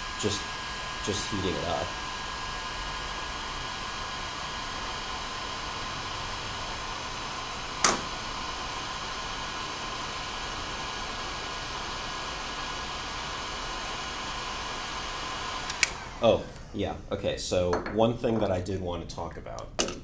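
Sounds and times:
heat gun blowing air: 0.0s - 17.1s
sharp click: 7.8s - 8.1s.

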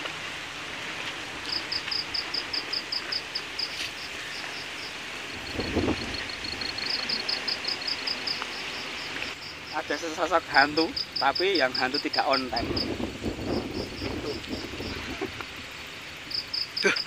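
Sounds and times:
steady night-time hiss: 0.0s - 17.0s
cricket chirping: 1.0s - 17.0s.

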